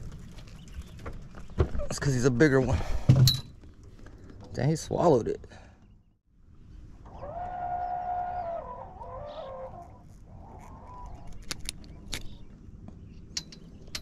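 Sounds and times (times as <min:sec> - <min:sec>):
drawn-out pitched call: 0:07.0 - 0:11.4
sharp metal clicks of forceps: 0:13.4 - 0:14.0.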